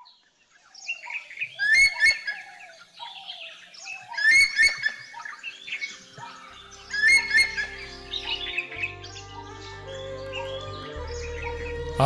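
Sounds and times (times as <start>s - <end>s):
birds chirping: 0.0s - 12.0s
low sustained music notes: 3.4s - 12.0s.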